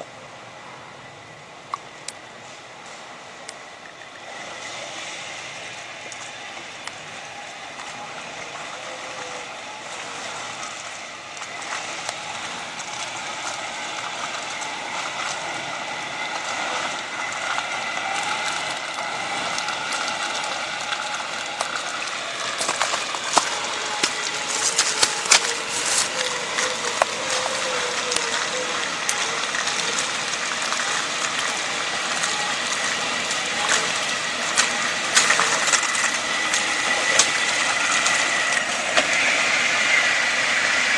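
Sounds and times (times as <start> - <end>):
off-road vehicle engine: 0.0 - 40.9
clicks and knocks over stones: 21.0 - 32.9.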